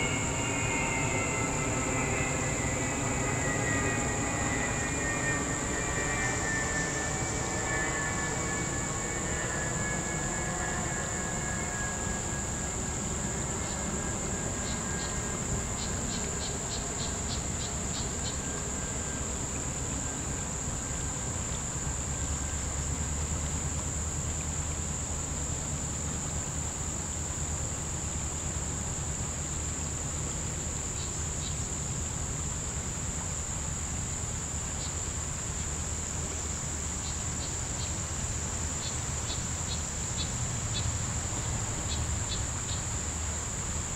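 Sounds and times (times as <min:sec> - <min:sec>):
low steady rumble: 0:00.0 - 0:31.1
insect chorus droning: 0:00.0 - 0:43.9.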